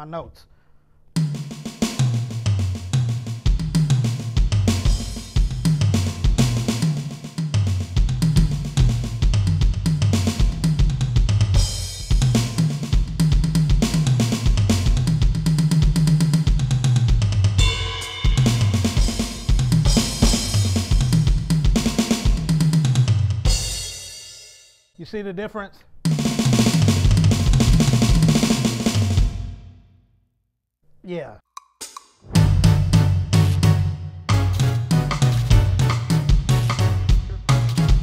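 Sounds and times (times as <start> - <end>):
tom drum fills: 1.2 - 24.3, 26.0 - 29.6, 31.9 - 38.0
cymbals: 17.6 - 21.3.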